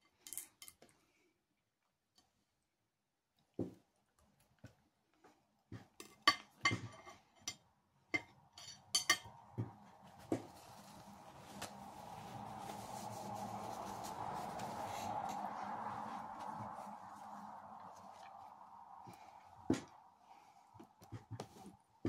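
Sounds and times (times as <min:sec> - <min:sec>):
cutlery clinking on a plate: 0:06.0 - 0:07.6, 0:08.2 - 0:09.4
steady rushing noise: 0:09.4 - 0:20.8.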